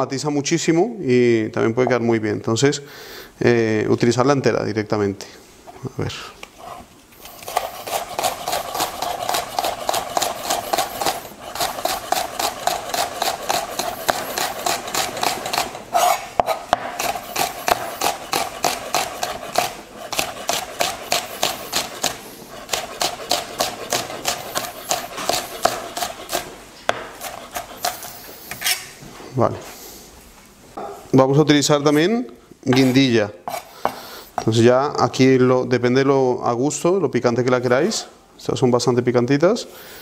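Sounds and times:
steady hum: 0:04.8 - 0:35.0
knife slicing onto cutting board: 0:07.4 - 0:28.9.

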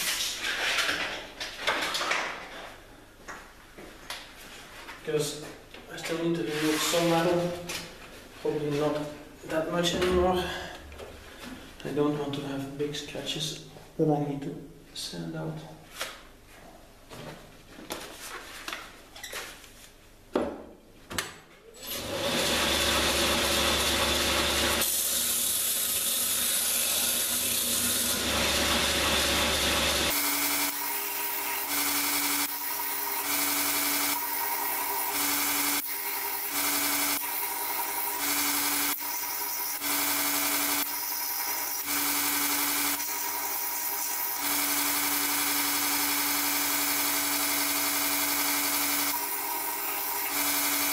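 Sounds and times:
belt grinder humming: 0:21.9 - 0:50.9.

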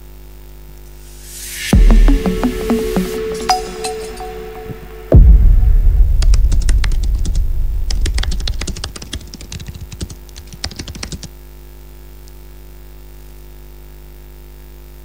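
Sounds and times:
deep boom: 0:01.1 - 0:09.1
keyboard typing clicks: 0:08.0 - 0:11.3.

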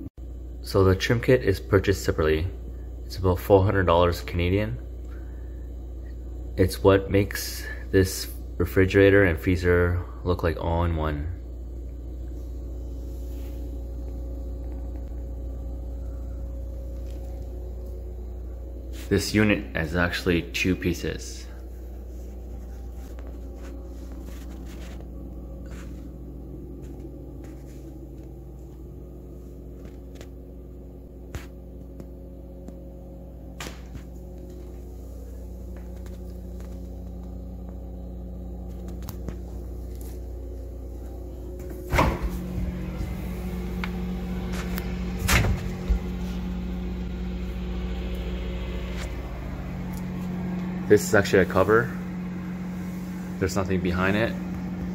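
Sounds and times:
refrigerator humming: 0:00.0 - 0:54.9
fridge door thuds: 0:41.6 - 0:46.2.

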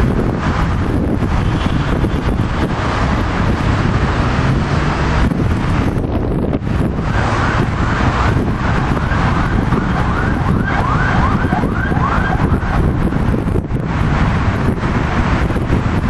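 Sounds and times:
low rumble of traffic: 0:00.0 - 0:16.0
wind on microphone: 0:00.0 - 0:16.0
siren yelping: 0:08.2 - 0:13.0.

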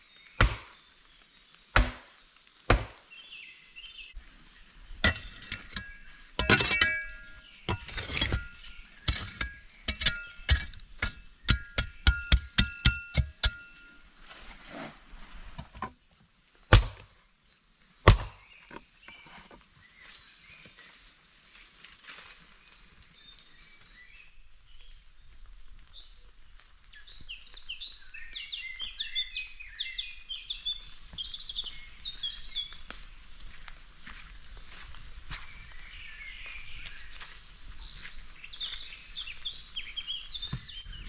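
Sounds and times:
songbirds chirping: 0:00.0 - 0:41.0.

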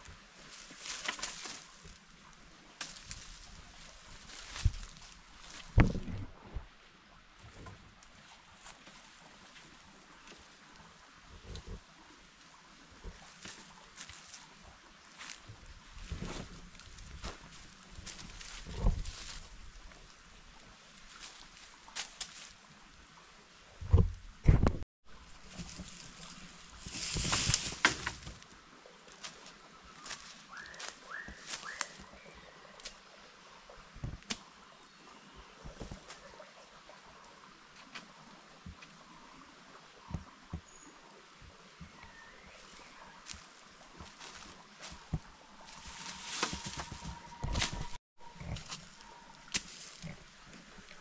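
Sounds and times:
leaves rustling and twigs snapping: 0:00.0 - 0:02.1, 0:02.8 - 0:06.2, 0:13.1 - 0:14.5, 0:16.0 - 0:19.6, 0:21.0 - 0:22.6, 0:25.2 - 0:28.5, 0:29.1 - 0:32.1, 0:42.6 - 0:51.0
bird calling: 0:29.9 - 0:32.8
twigs snapping: 0:49.4 - 0:50.1.

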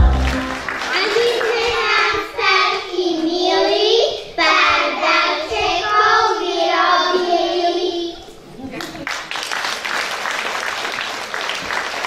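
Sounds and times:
children singing in unison: 0:00.9 - 0:08.3.

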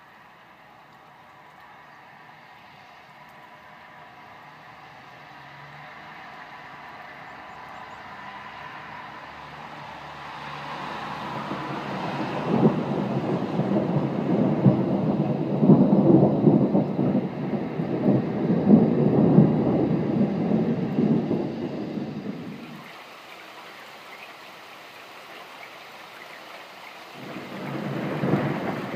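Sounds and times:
rolling thunder: 0:11.4 - 0:22.8, 0:27.1 - 0:28.9.

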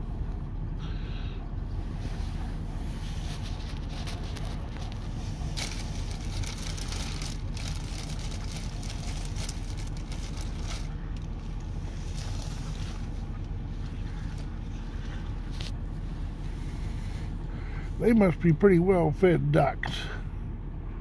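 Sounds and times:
vehicle engine idling: 0:00.0 - 0:21.0.

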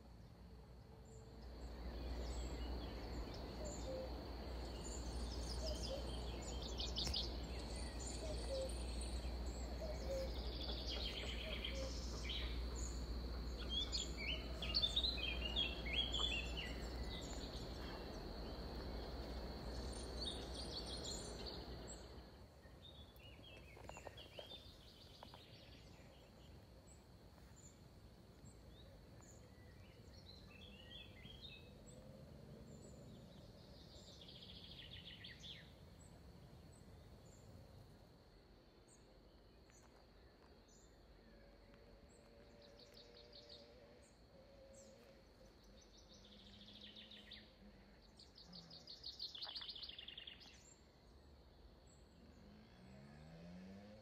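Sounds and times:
birds chirping: 0:01.5 - 0:32.0.

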